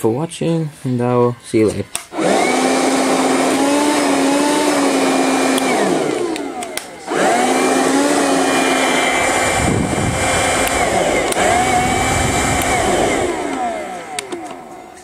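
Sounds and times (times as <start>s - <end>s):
vacuum motor whining: 2.0s - 15.0s
low rumble of air on microphone: 9.1s - 13.4s.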